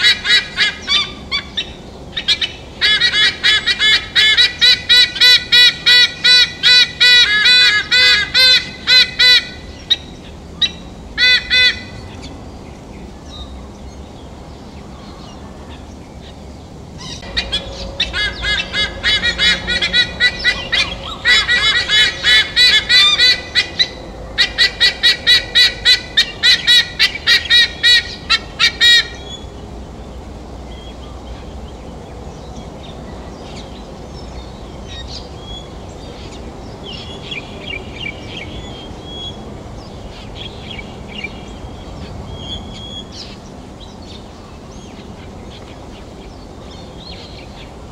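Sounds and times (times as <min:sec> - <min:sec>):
eagle calling ark-ark: 0:00.0 - 0:12.3, 0:17.0 - 0:29.5.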